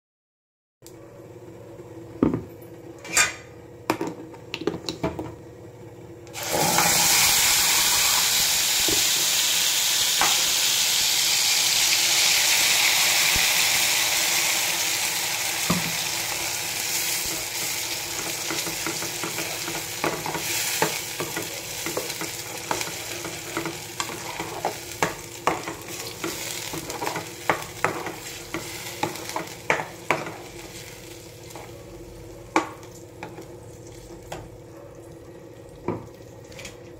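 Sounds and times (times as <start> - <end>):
paste sizzling in hot oil: 6.4 - 31.6.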